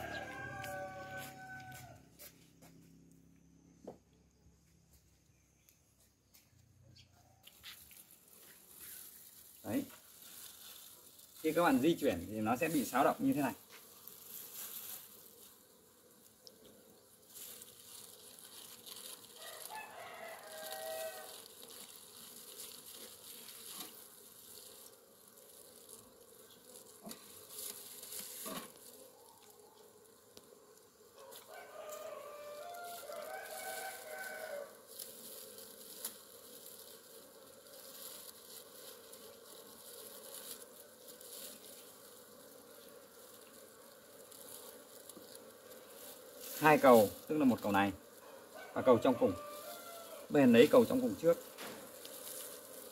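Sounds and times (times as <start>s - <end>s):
rooster crowing: 0.0s - 2.3s, 19.4s - 21.6s, 31.2s - 34.8s, 48.2s - 50.5s
honeybees humming: 0.0s - 52.9s.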